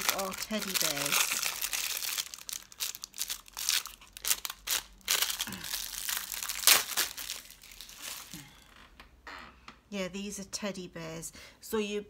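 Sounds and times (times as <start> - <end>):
plastic bag crinkling: 0.0 - 8.7.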